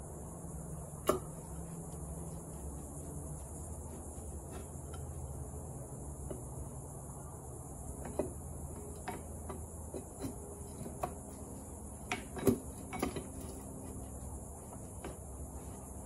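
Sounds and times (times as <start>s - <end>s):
light metal clinks and knocks: 7.9s - 16.0s.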